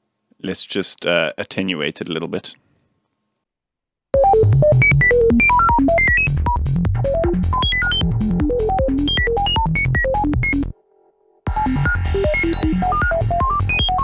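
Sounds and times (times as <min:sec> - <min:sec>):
synth sine-wave blips: 0:04.2 - 0:14.0.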